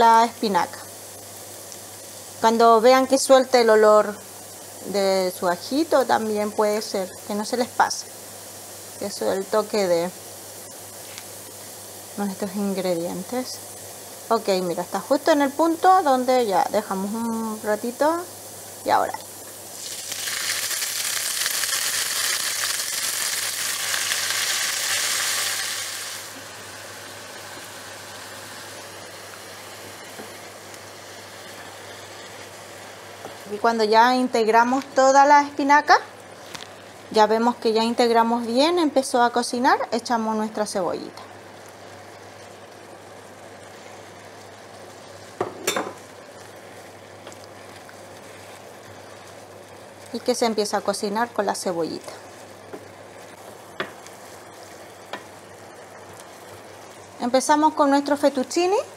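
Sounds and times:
spinach sizzling in hot oil: 0.0s - 58.9s.

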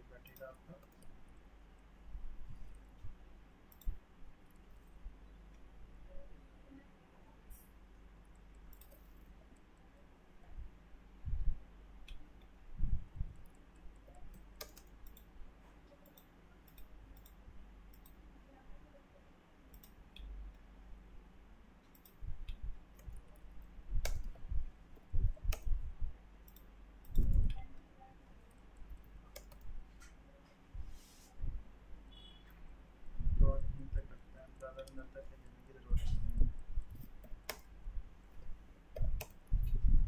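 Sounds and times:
computer mouse clicking: 0.2s - 1.9s, 2.7s - 5.7s, 7.6s - 9.7s, 12.0s - 18.2s, 19.7s - 20.7s, 21.8s - 25.8s, 26.4s - 27.8s, 28.5s - 30.2s, 34.6s - 37.8s, 38.9s - 39.8s.

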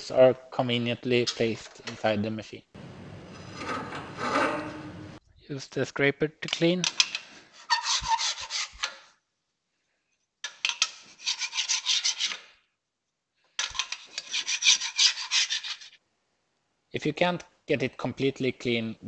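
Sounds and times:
plastic scraper scraping metal: 2.8s - 5.2s.

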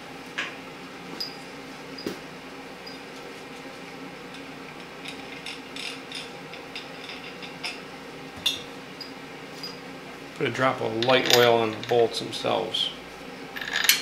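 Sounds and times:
metal tools clicking: 11.0s - 12.0s.

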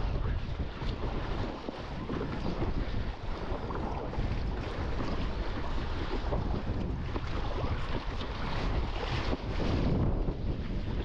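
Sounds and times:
water splashing against kayak: 0.0s - 11.0s
wind buffeting microphone: 0.0s - 11.0s.

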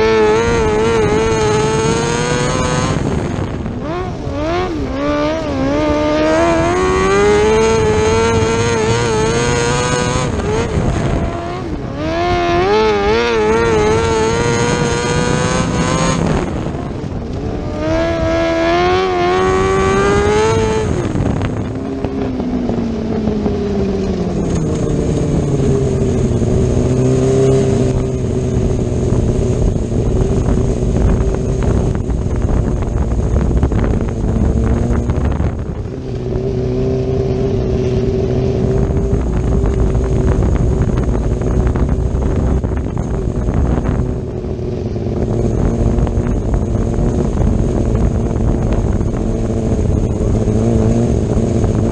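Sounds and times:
racing engine revving: 0.0s - 22.8s.

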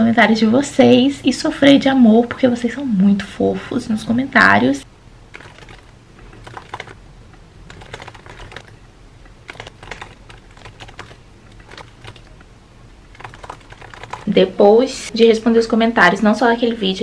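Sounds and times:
laptop keyboard typing: 5.3s - 7.0s, 7.7s - 14.5s.

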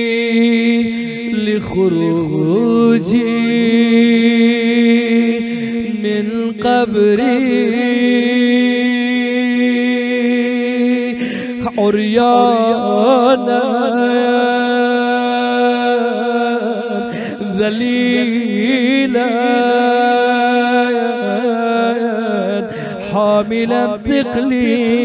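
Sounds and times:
man chanting melodic phrases: 0.0s - 25.0s.

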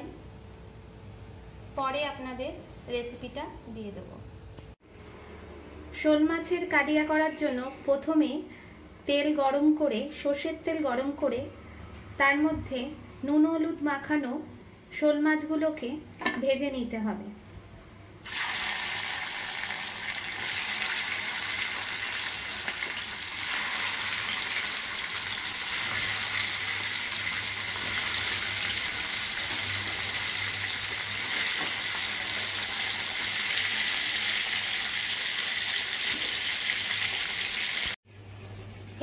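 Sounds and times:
fish sizzling in a frying pan: 18.2s - 38.0s.

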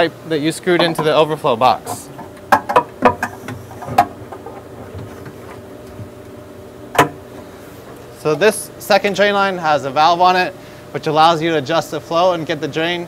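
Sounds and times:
faint steady hum: 0.0s - 13.0s
plastic pipe clicks and knocks: 1.9s - 5.4s, 6.9s - 7.2s.

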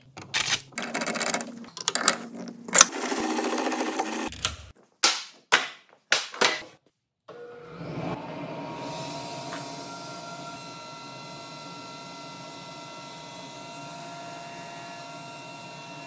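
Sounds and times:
metallic clicks and rattles: 0.0s - 2.9s
router motor humming: 2.7s - 4.3s.

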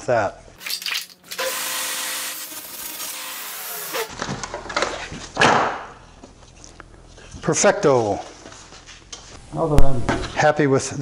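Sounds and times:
table saw cutting plastic: 0.7s - 4.1s
saw motor humming: 1.2s - 4.1s.

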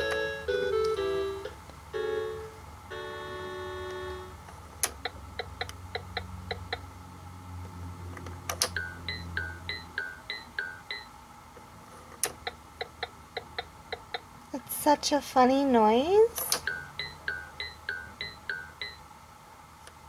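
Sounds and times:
electronic toy jingle: 0.0s - 4.4s, 8.8s - 11.1s.

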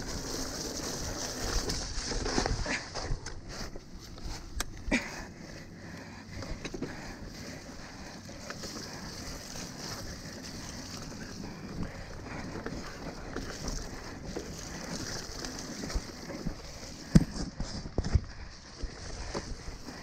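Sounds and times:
bike frame rattle: 0.0s - 5.2s, 6.3s - 20.0s
bike tyre noise: 0.0s - 20.0s
bike thumping on bump: 16.9s - 18.4s.

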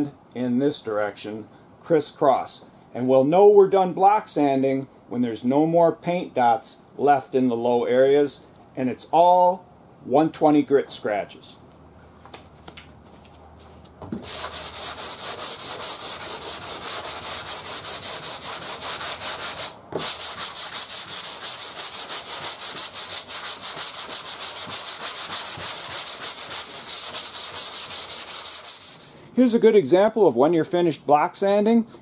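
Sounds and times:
sandpaper scrubbing a panel: 14.2s - 29.2s.

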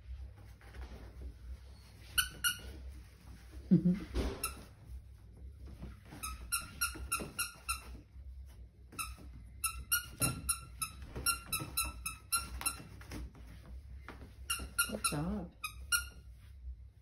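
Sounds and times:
squeaky toy squeaking: 2.0s - 2.8s, 6.1s - 8.0s, 9.0s - 12.9s, 14.5s - 16.3s.

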